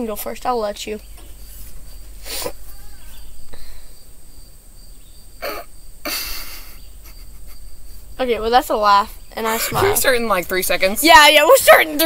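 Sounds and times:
stifled laughter: 5.4 - 8.0, 9.5 - 10.1.

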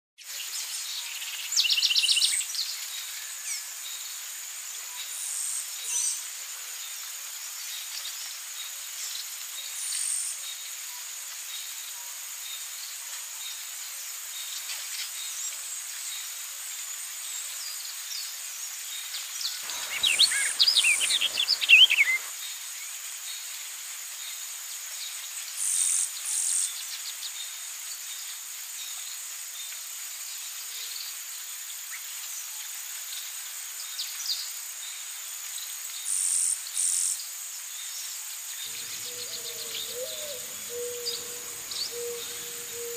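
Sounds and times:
birds calling: 19.6 - 22.3, 38.7 - 42.9
high-pitched insect drone: 19.6 - 22.3
rapid bird chirping: 19.6 - 22.3, 38.7 - 42.9.

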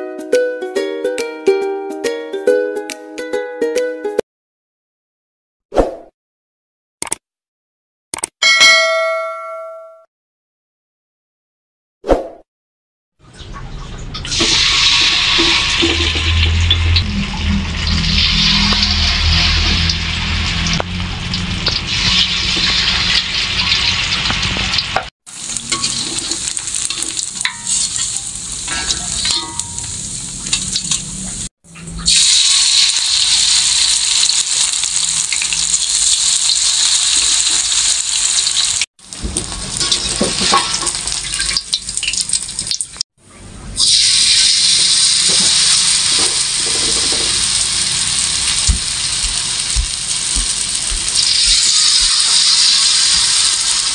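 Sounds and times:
fritters sizzling in hot oil: 14.4 - 43.0, 43.8 - 53.9.

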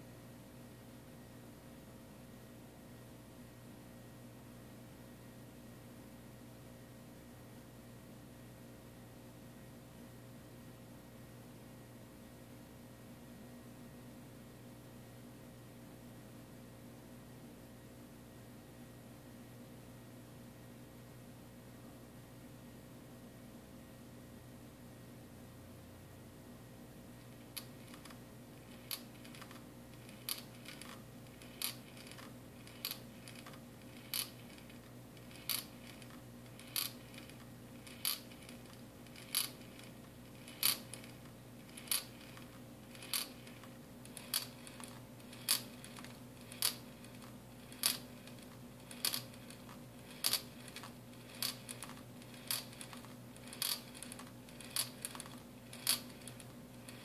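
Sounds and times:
marbles clicking against glass: 27.5 - 57.0.

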